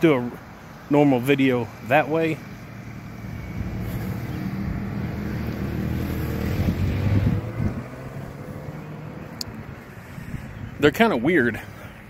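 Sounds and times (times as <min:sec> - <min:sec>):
car driving past: 0:02.4 - 0:10.2
wind on microphone: 0:03.2 - 0:10.8.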